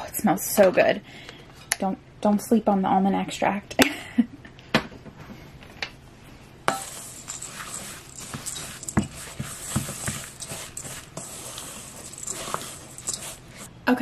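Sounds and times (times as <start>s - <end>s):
spoon stirring oats in a bowl: 6.7s - 13.7s.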